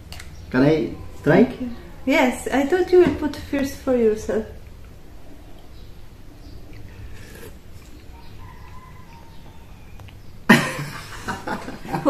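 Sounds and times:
people laughing: 0:10.5 - 0:12.0.

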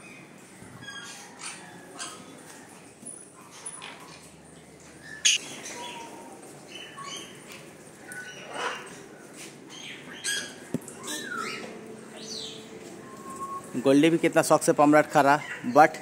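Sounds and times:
parrots squawking: 0:05.2 - 0:05.6.

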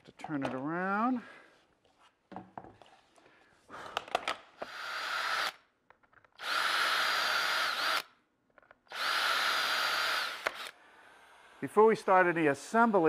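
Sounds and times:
power drill whining: 0:04.6 - 0:05.6, 0:06.4 - 0:08.2, 0:08.9 - 0:11.6.

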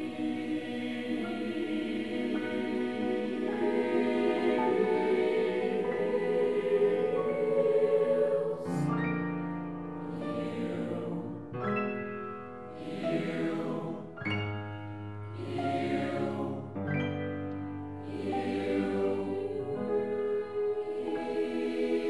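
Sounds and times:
mixed choir singing: 0:00.0 - 0:12.0, 0:12.7 - 0:14.6, 0:15.3 - 0:17.3, 0:18.0 - 0:22.0
upright piano accompaniment: 0:00.0 - 0:22.0.

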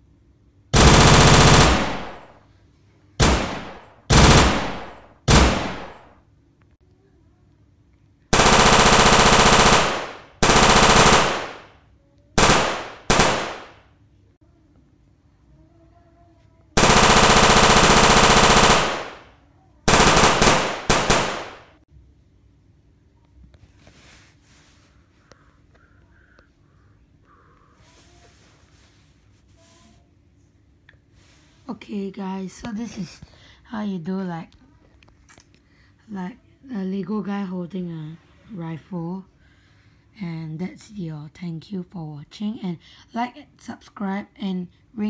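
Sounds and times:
automatic rifle gunfire: 0:00.8 - 0:02.4, 0:03.2 - 0:06.1, 0:08.4 - 0:11.8, 0:12.4 - 0:13.8, 0:16.8 - 0:19.3, 0:19.9 - 0:21.8.

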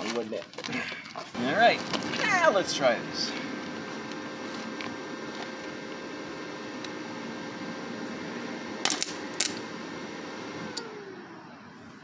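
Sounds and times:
welding arc crackling: 0:01.2 - 0:11.2
welder humming: 0:01.2 - 0:12.0.

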